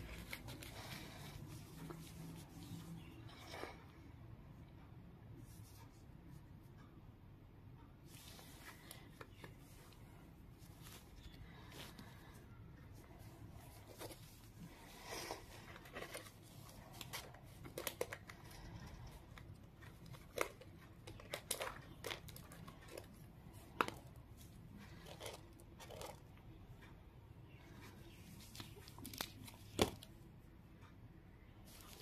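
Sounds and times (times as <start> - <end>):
paper crinkling: 0.0 - 2.9, 13.2 - 26.2.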